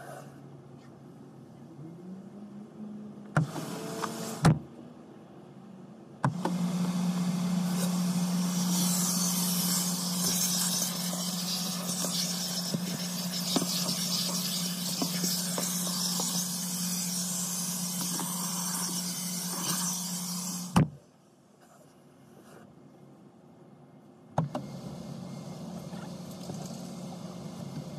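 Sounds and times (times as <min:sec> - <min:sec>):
vacuum cleaner running: 0:03.4 - 0:04.5, 0:06.3 - 0:20.8, 0:24.4 - 0:27.9.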